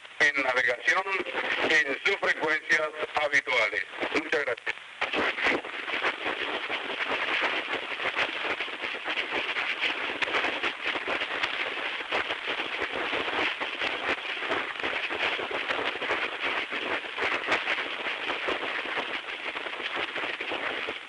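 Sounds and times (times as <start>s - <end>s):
radio static with crackles: 0.0s - 21.0s.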